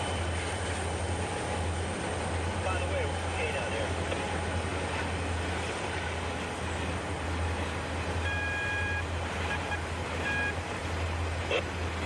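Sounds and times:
brief high-pitched tones: 8.2s - 10.5s.

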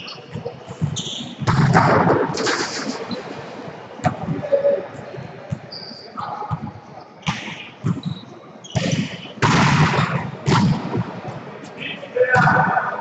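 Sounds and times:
sneaker squeak on court: 0.0s - 1.5s, 7.3s - 9.4s
players' voices: 8.4s - 13.0s.

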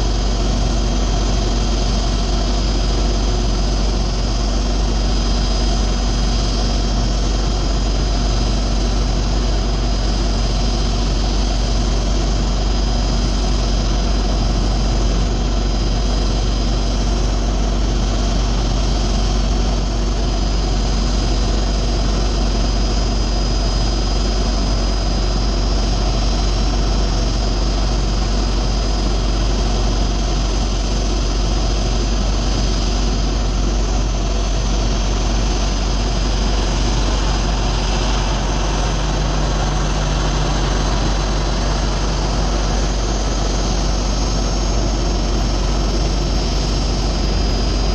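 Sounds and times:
constant high whine: 0.0s - 47.9s
engine idling drone: 0.0s - 47.9s.

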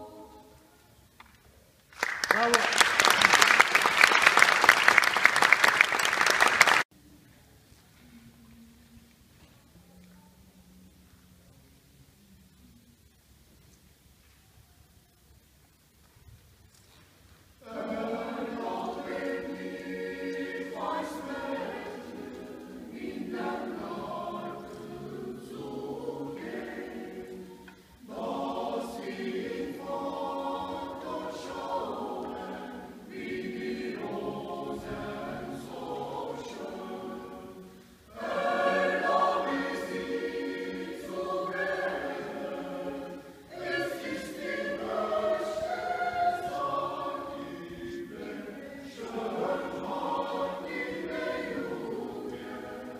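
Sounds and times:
mixed choir singing a cappella: 0.0s - 0.8s, 17.6s - 52.9s.

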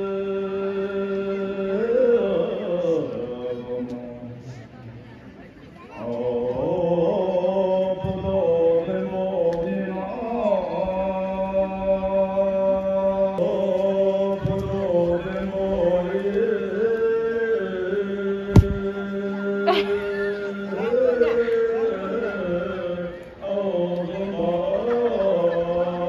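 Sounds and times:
man singing over loudspeakers: 0.0s - 5.0s, 5.9s - 26.0s
sharp knock: 18.6s - 18.8s.

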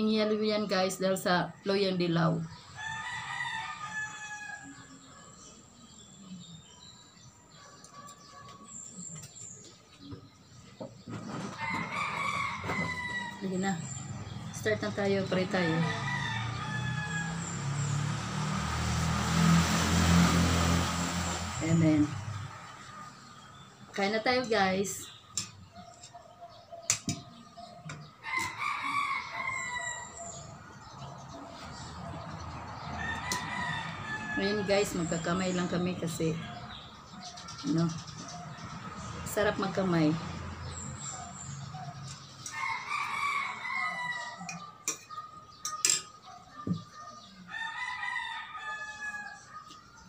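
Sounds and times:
rooster crowing: 2.6s - 5.5s, 11.5s - 13.6s, 15.3s - 20.6s, 28.2s - 31.9s, 32.5s - 34.8s, 42.4s - 45.4s, 47.1s - 49.8s.

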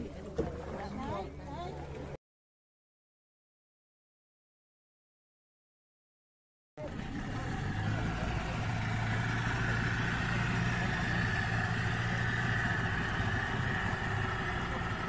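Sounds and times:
boat engine humming: 0.0s - 2.2s, 6.8s - 15.0s
wind: 0.0s - 2.2s, 6.8s - 15.0s.

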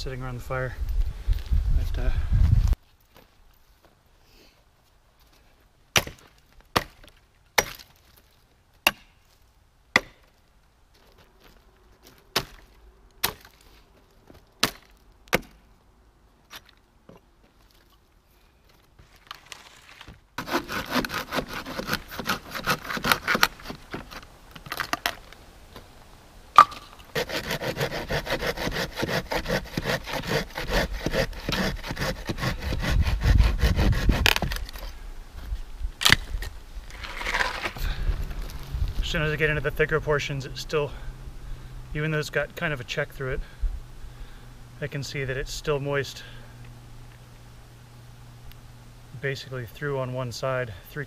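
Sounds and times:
axe chopping log: 5.9s - 8.0s, 8.8s - 9.2s, 9.9s - 10.3s, 12.3s - 13.6s, 14.6s - 15.6s, 26.6s - 34.6s
wood cracking: 9.9s - 15.6s, 18.7s - 25.9s, 36.0s - 39.1s
folding saw cutting log: 19.4s - 24.3s, 26.9s - 35.0s, 36.9s - 38.6s.

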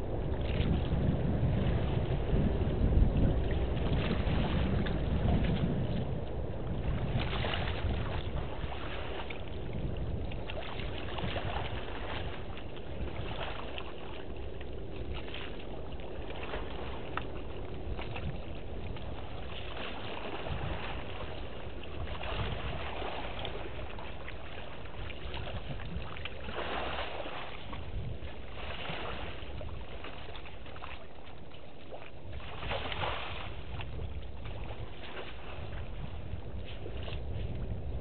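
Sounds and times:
elephant splashing through water: 0.0s - 38.0s.

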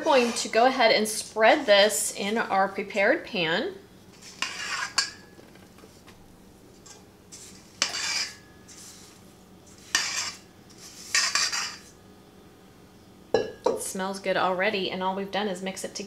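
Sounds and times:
spatula scraping metal bowl: 0.0s - 2.4s, 4.1s - 5.2s, 6.8s - 12.0s
spatula knocking metal bowl: 13.4s - 13.8s.

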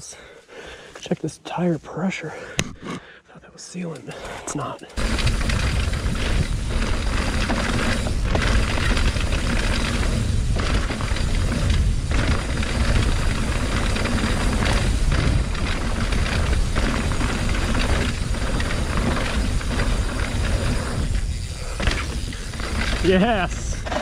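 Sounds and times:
bike tyres on dirt: 4.9s - 24.0s
low rumble: 5.0s - 23.9s
bike frame knocks and rattles: 5.0s - 24.0s.

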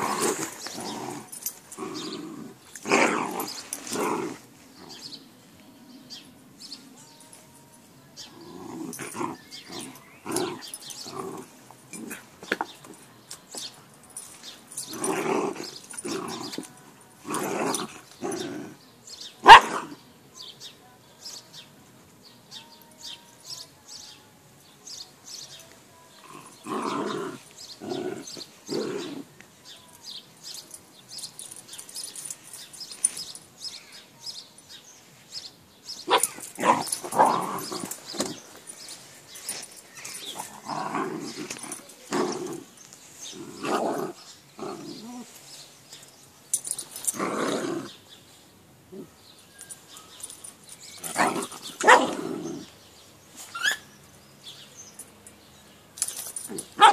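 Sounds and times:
dogs growling: 0.0s - 5.1s, 8.3s - 12.5s, 14.8s - 18.8s, 26.2s - 29.4s, 36.1s - 38.6s, 39.5s - 45.4s, 47.0s - 48.1s, 51.0s - 52.8s
dogs barking: 19.4s - 20.0s, 36.0s - 38.4s, 51.0s - 52.7s, 56.4s - 56.9s.

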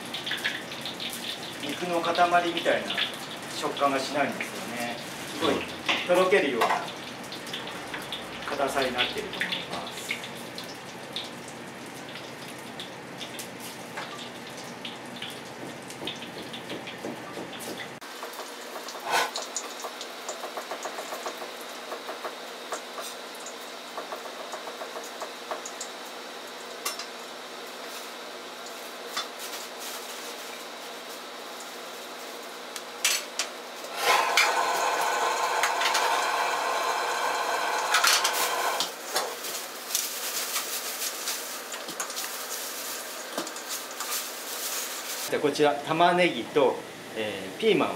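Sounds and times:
pork sizzling in oil: 0.0s - 47.2s
wire ladle scraping wok: 19.0s - 19.4s.

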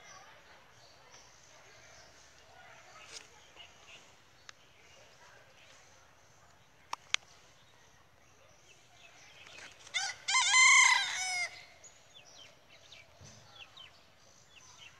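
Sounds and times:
rooster crowing: 9.9s - 11.6s.

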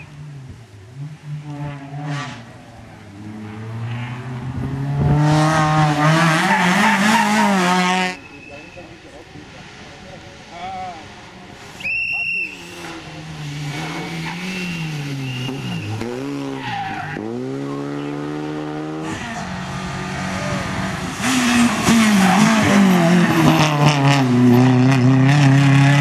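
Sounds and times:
car engine revving through gears: 0.9s - 8.2s, 12.8s - 26.0s.

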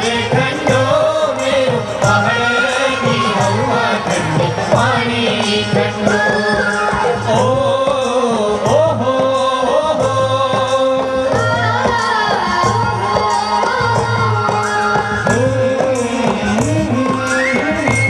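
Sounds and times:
person singing folk song: 0.0s - 18.0s.

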